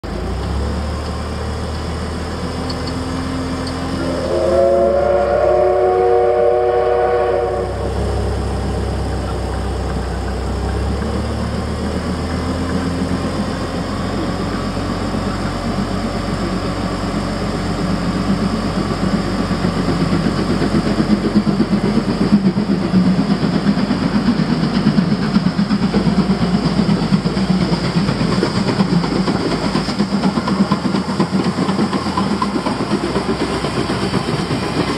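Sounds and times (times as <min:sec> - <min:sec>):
steam locomotive and train passing: 0:00.0 - 0:34.9
steam whistle: 0:03.9 - 0:08.6.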